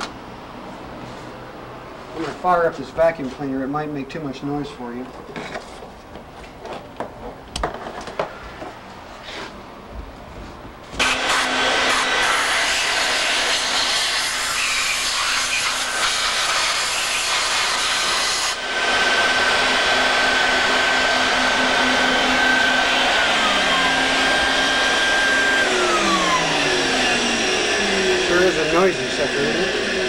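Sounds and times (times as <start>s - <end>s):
vacuum cleaner running: 10.9s - 30.0s.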